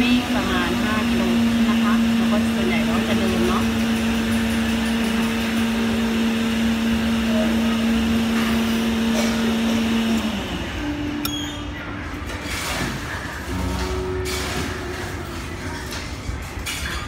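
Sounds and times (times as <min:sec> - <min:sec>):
machine humming: 0:00.0 - 0:12.8.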